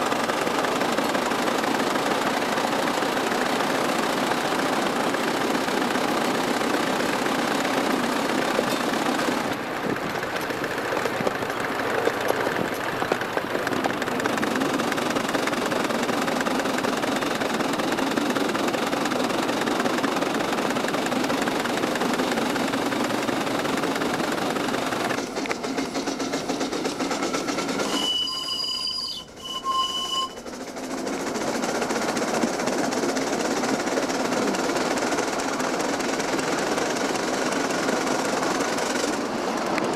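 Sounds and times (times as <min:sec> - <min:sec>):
steam locomotive running on rails: 0:00.0 - 0:39.9
short high tone: 0:27.9 - 0:30.4.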